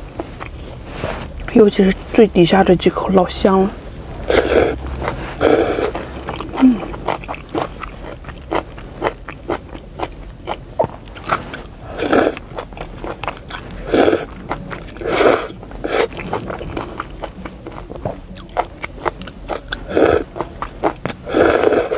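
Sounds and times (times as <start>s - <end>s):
person slurping noodles: 4.2s - 9.2s, 11.2s - 12.4s, 13.8s - 16.4s, 19.8s - 20.4s, 21.2s - 21.9s
wet chewing and lip smacks: 12.3s - 21.8s.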